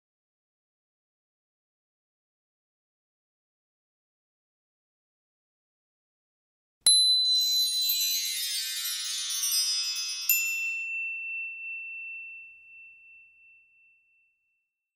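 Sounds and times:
chime strike: 6.9s - 13.9s
shimmering tinkling chimes: 6.9s - 14.4s
bright ding: 10.2s - 14.7s.

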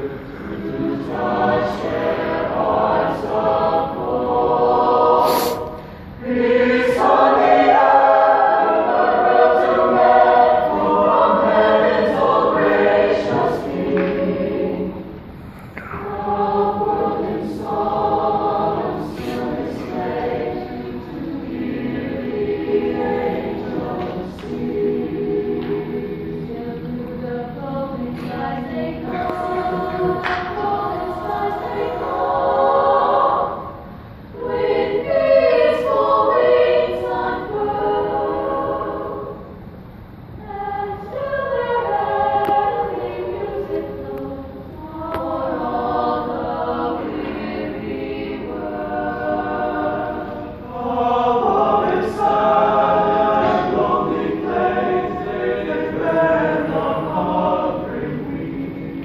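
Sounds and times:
mixed choir singing in harmony: 0.0s - 59.0s.

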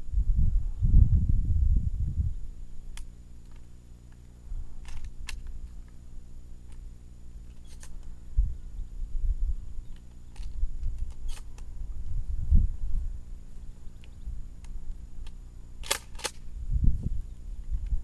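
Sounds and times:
wind buffeting microphone: 0.0s - 2.7s, 8.2s - 13.4s, 16.3s - 18.0s.

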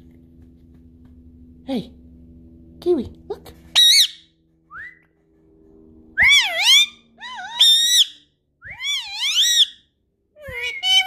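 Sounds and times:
parakeet whistling: 3.8s - 5.0s, 6.2s - 9.8s, 10.5s - 11.0s.

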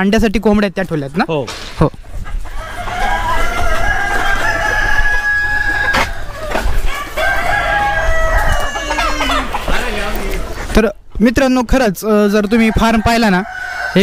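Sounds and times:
hens clucking: 0.9s - 10.9s, 12.1s - 14.0s
roosters crowing: 2.3s - 10.7s, 12.2s - 14.0s.

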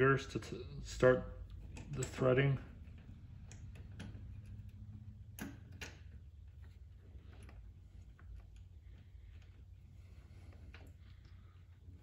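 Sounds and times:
small metallic clicks: 1.5s - 9.6s.

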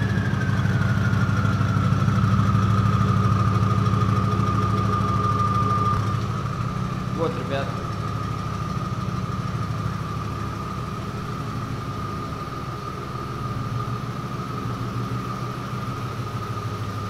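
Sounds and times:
car engine idling: 0.0s - 17.0s
high whine: 0.0s - 17.0s.

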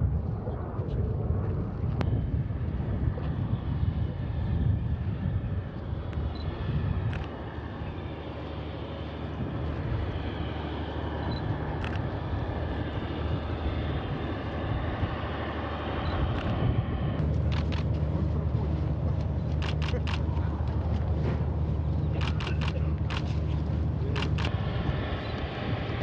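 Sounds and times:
diesel locomotive rumbling: 5.8s - 26.0s.

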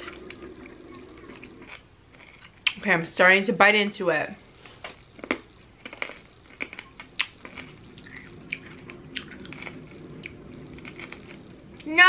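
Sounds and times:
hard candy crunching: 1.1s - 2.8s, 5.0s - 11.5s.

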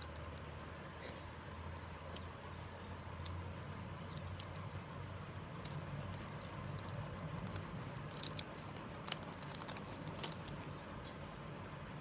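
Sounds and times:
plastic shrink-wrap crackling: 5.5s - 10.7s.

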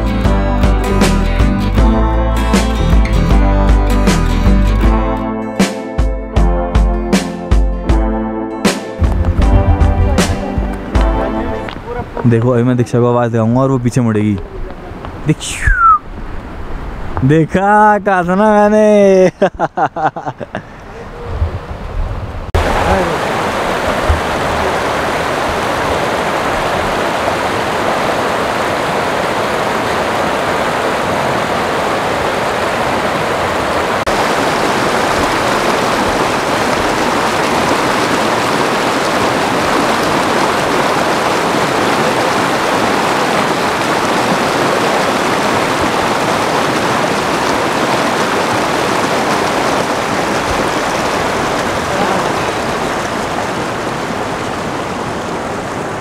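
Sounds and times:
faint low thumps: 9.0s - 11.9s
stream rushing over boulders: 9.0s - 19.2s, 21.1s - 56.0s.

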